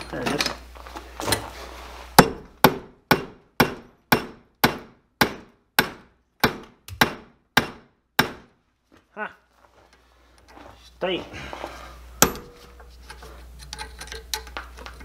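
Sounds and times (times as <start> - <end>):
hammer striking steel punch: 2.2 - 8.6, 12.2 - 12.6.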